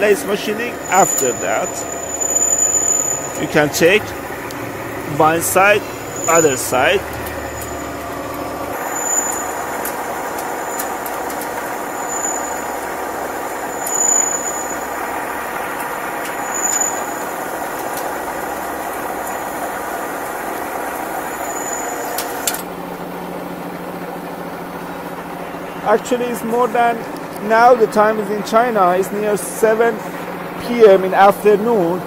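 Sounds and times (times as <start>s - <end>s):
metal lathe cutting steel: 0.0s - 22.7s.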